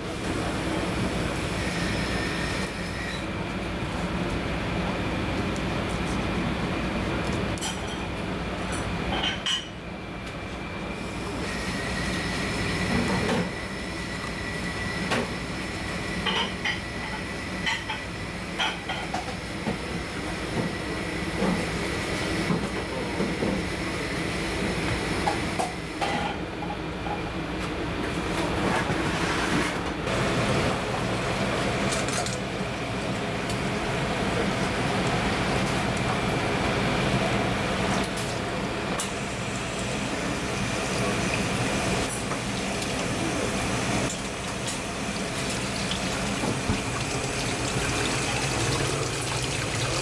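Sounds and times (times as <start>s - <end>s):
kitchen hum: 0.0s - 50.0s.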